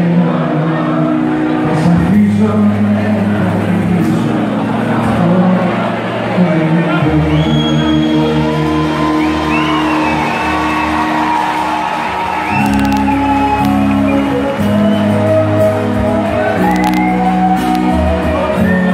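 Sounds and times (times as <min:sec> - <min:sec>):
crowd shouting and whooping: 0:04.4 - 0:18.9
live band music with bouzoukis: 0:07.7 - 0:18.9.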